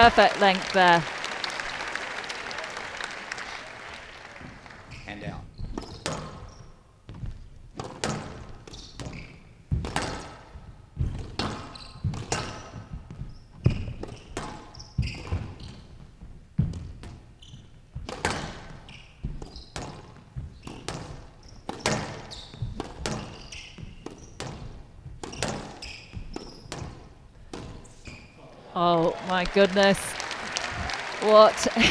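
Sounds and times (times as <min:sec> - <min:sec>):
squash racket striking ball: 0:05.6 - 0:15.6, 0:18.0 - 0:28.2
ball smacking court walls: 0:05.6 - 0:15.8, 0:16.6 - 0:28.3.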